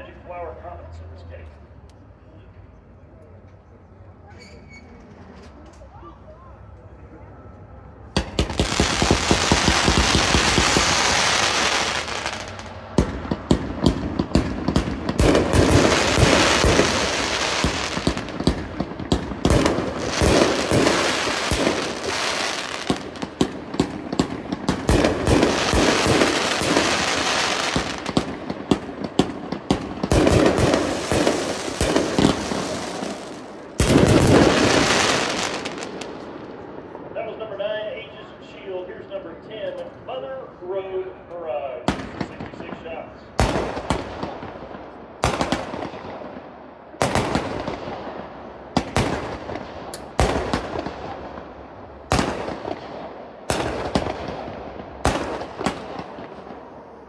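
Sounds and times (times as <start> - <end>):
firework launches and bursts: 8.2 - 36.3.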